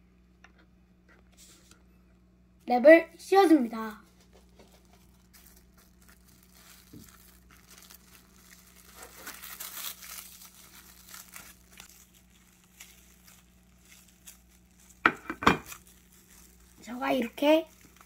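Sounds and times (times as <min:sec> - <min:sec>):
cling wrap crinkling: 0:04.0 - 0:18.0.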